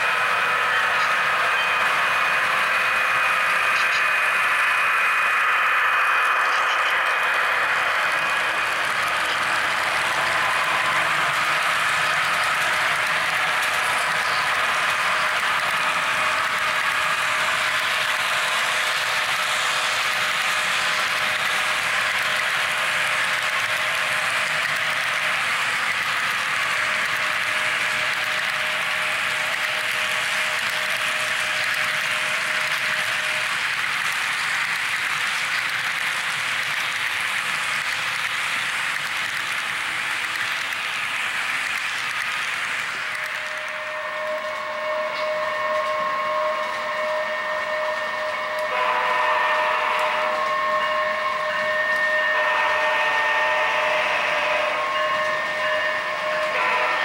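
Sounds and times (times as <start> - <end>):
model train wheels rolling on rail: 0.0 - 57.0
multi-tone locomotive horn: 43.0 - 57.0.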